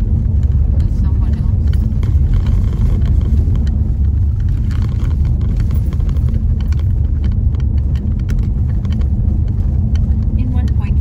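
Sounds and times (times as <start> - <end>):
car interior road rumble: 0.0 - 11.0.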